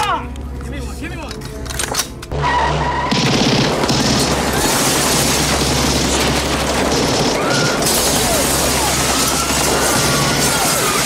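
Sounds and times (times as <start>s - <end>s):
submachine gun automatic fire: 3.1s - 11.0s.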